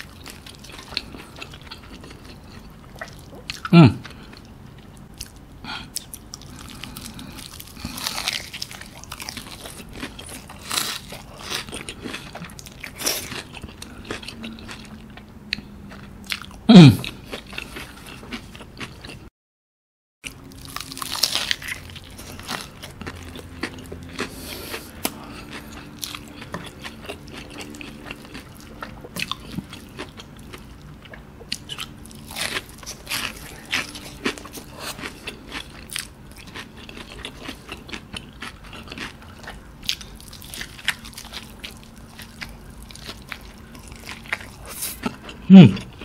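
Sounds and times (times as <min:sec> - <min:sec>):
chewing: 0:00.0 - 0:19.2, 0:20.2 - 0:46.0
fried chicken crunching: 0:06.0 - 0:14.8, 0:20.3 - 0:30.7, 0:31.5 - 0:45.2.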